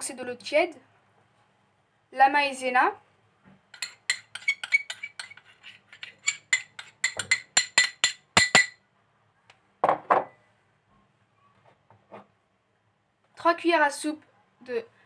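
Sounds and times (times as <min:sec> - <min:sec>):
metal spoon clinking on bowl: 0:03.8 - 0:08.8.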